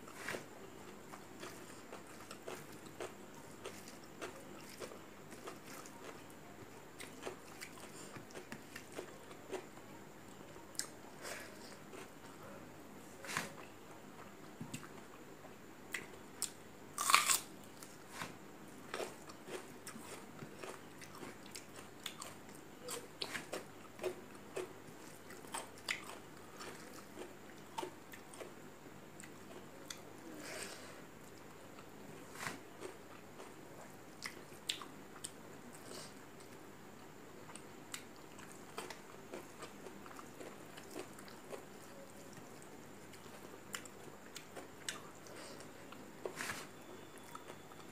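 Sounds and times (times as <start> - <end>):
crunchy bite: 16.4 - 17.5
person chewing with mouth clicks: 18.9 - 28.5.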